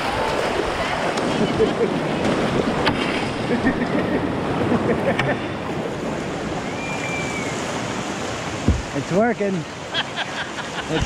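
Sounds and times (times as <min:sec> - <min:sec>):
river rapids rushing and splashing: 0:00.0 - 0:11.0
sharp knocks: 0:08.6 - 0:08.9.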